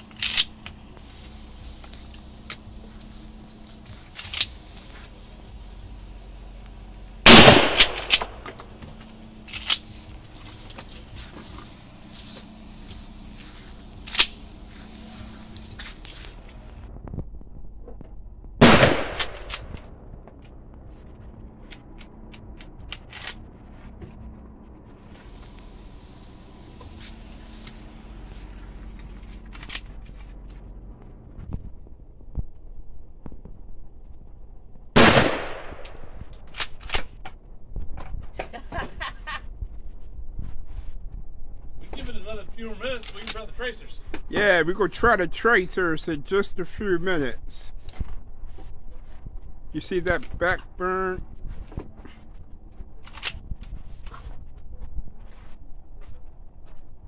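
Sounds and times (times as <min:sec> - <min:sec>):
loud shotgun shot with echo: 0:07.3 - 0:08.4, 0:18.6 - 0:19.5, 0:35.0 - 0:35.9.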